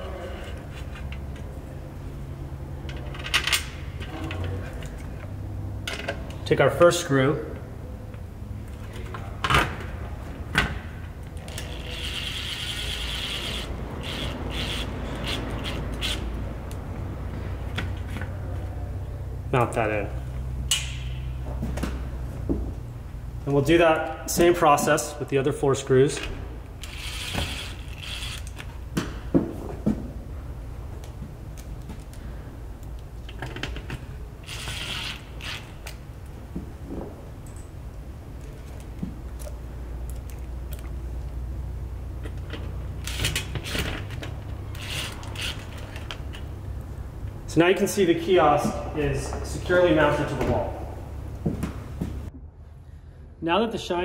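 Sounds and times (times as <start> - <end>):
power drill driving screw: 11.6 - 16.3, 26.8 - 28.6, 34.4 - 35.8, 44.7 - 46.0.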